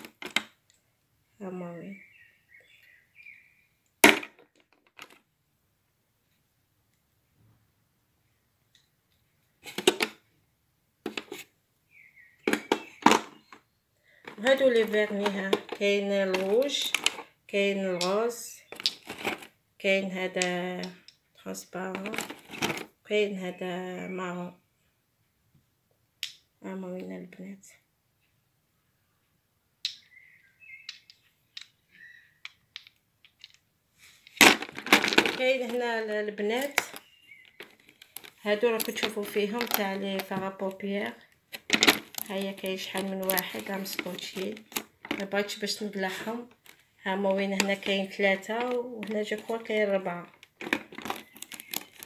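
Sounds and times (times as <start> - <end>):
plastic case clattering clicks: 9.7 - 10.2, 11.1 - 11.4, 12.5 - 13.6, 14.3 - 17.2, 18.8 - 19.5, 21.9 - 22.9, 34.4 - 35.8, 37.6 - 40.4, 41.5 - 45.3, 50.4 - 52.0.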